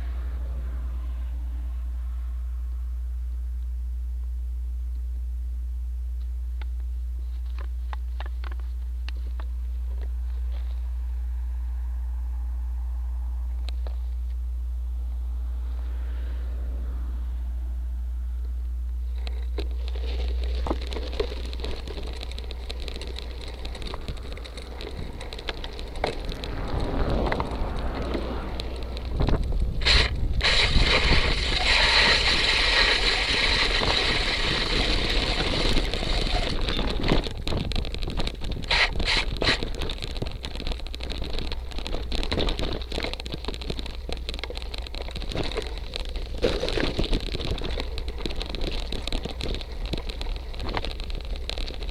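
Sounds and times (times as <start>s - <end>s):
bike tyres on gravel: 7.1s - 51.9s
wind on microphone: 23.6s - 51.9s.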